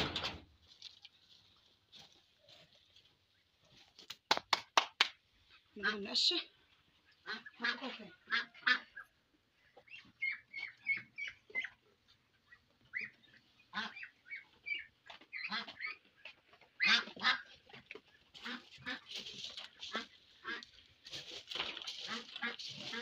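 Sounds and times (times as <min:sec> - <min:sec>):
waterfowl harsh calls: 0:07.1 - 0:09.2, 0:12.9 - 0:16.0, 0:16.8 - 0:17.5, 0:18.4 - 0:19.2, 0:19.8 - 0:20.7, 0:22.1 - 0:23.0.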